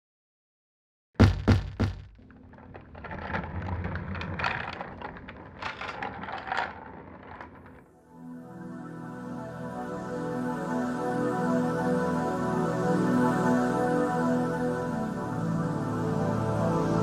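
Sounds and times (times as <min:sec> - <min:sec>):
apple bouncing thuds: 0:01.2 - 0:02.2
apple rattling as it rolls: 0:02.1 - 0:07.9
soft ambient music: 0:08.0 - 0:17.0.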